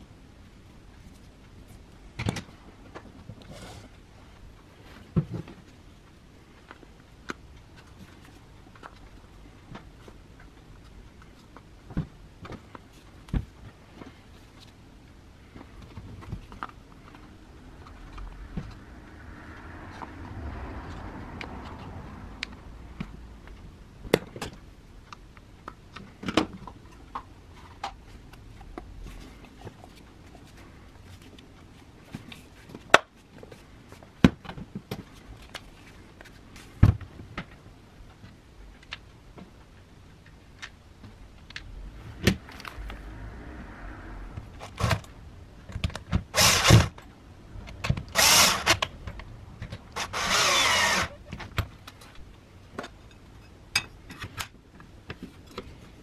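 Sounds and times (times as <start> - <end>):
small power tool bursts: 46.4 - 46.9, 48.2 - 48.8, 50.0 - 51.2.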